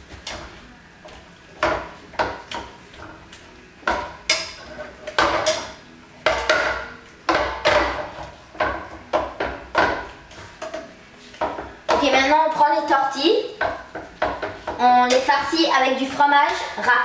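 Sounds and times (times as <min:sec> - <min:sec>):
utensil clanking on metal frying pan: 0:01.6 - 0:03.2, 0:03.8 - 0:16.9.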